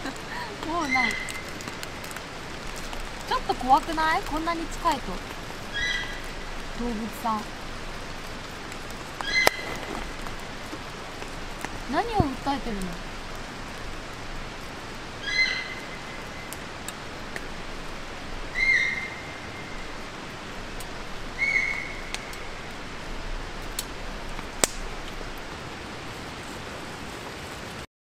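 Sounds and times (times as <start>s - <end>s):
deer whistle-like calls: 18.6s - 19.3s.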